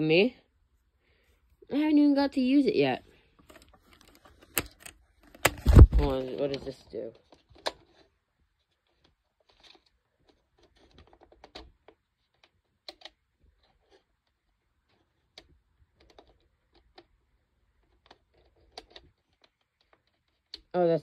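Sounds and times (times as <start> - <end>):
camera clicks and taps: 3.5 - 6.1.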